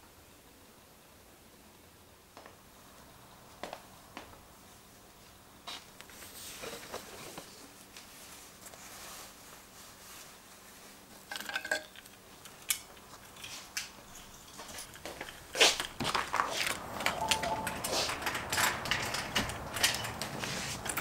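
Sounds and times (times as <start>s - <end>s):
faint rustling: 5.2s - 11.2s
keyring clinking: 16.8s - 20.2s.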